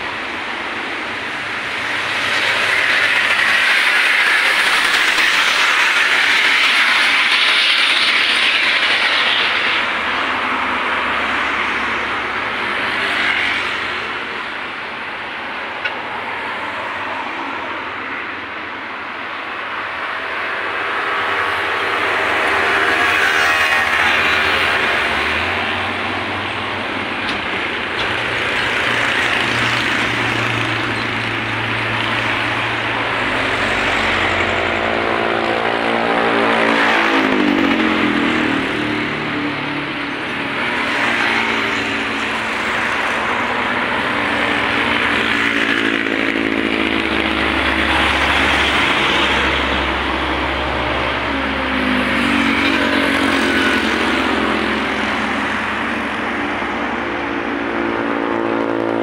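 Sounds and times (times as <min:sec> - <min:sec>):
vehicles passing: 0:00.0 - 0:59.0.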